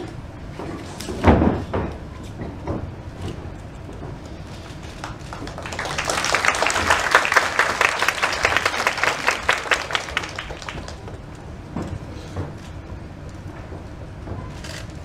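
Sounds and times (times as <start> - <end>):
arena crowd clapping: 4.8 - 11.2.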